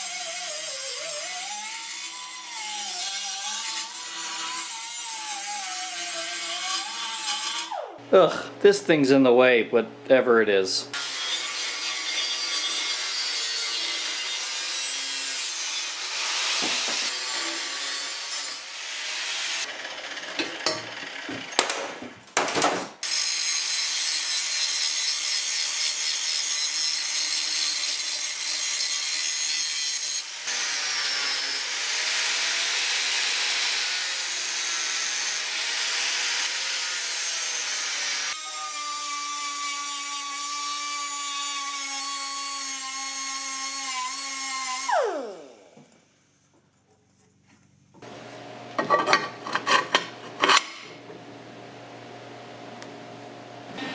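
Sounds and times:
angle grinder grinding metal: 0.0 - 8.0, 10.9 - 21.6, 23.0 - 45.8, 48.0 - 51.1.

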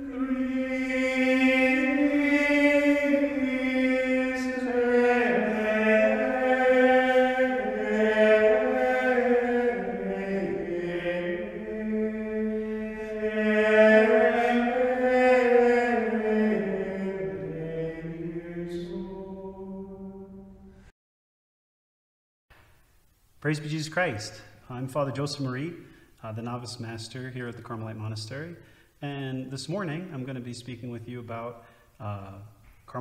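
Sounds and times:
unison chant singing: 0.0 - 20.9.

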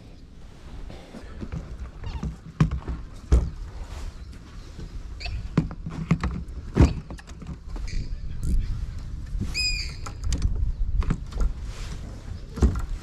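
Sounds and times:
fishing rods knocking and clunking: 1.3 - 3.6, 5.4 - 8.6, 9.8 - 11.6, 12.5 - 13.0
wind rumbling on microphone: 1.3 - 13.0.

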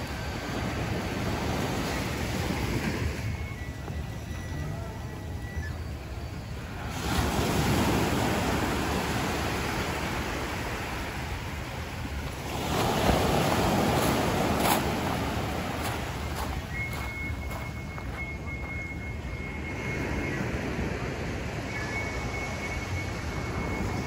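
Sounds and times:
small waves breaking on beach: 6.5 - 17.6.

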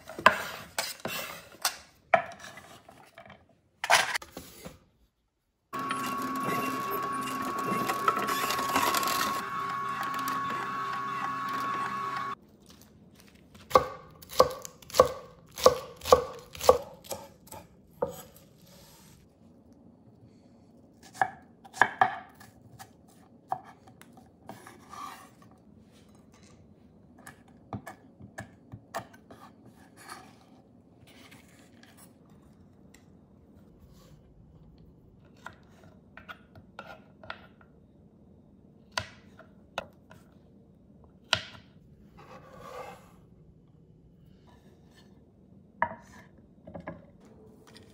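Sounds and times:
juicer motor whining: 5.8 - 12.4.

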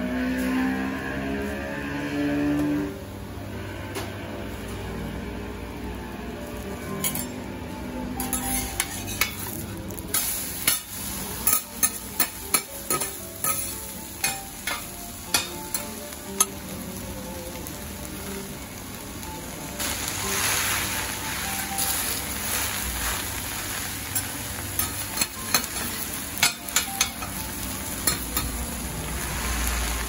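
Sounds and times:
steel spatulas clinking on griddle: 6.9 - 7.4, 8.2 - 16.6, 24.2 - 28.6
food sizzling: 8.2 - 30.0.

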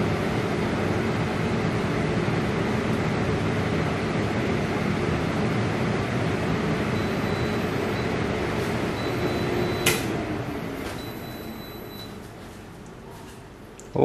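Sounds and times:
air fryer fan running: 0.0 - 14.0.

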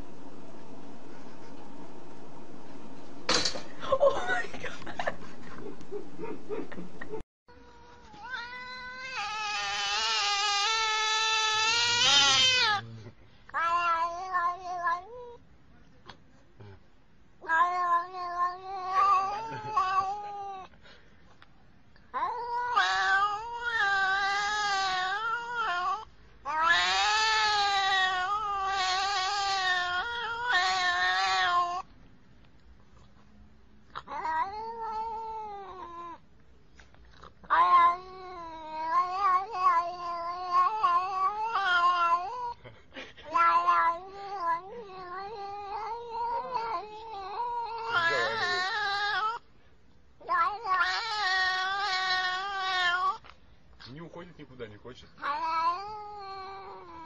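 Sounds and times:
cat meowing: 7.6 - 12.9, 13.6 - 15.4, 17.4 - 20.7, 22.2 - 31.9, 34.0 - 36.2, 37.4 - 42.6, 43.2 - 49.4, 50.2 - 53.3, 55.2 - 57.0.

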